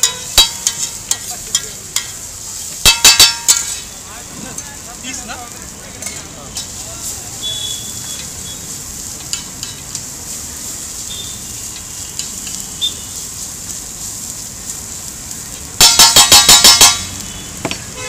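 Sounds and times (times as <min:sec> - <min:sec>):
spatula clattering on griddle: 0:00.0 - 0:03.9, 0:06.0 - 0:06.8, 0:09.2 - 0:10.1, 0:15.8 - 0:17.2
food sizzling on griddle: 0:00.0 - 0:18.0.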